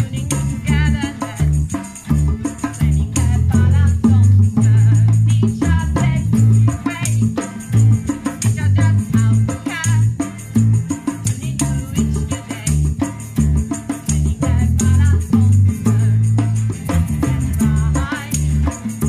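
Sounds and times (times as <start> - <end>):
woman singing: 0.0 - 10.4, 11.1 - 13.1, 13.8 - 16.5, 17.2 - 19.0
bongos: 0.0 - 19.0
electric bass guitar: 0.0 - 19.0
hand shaker rattling: 0.0 - 19.0
strummed acoustic guitar: 1.7 - 3.0, 15.6 - 19.0.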